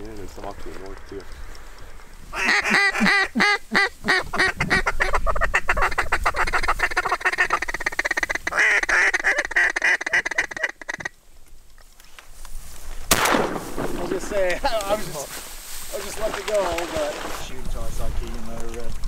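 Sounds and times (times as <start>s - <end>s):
duck call rolling chatter: 2.2s - 11.2s
duck call quacking: 2.3s - 11.2s.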